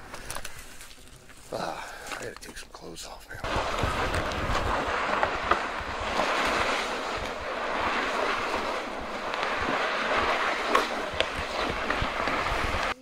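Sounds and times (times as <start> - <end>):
plastic sled scraping on gravel: 3.4 - 13.0.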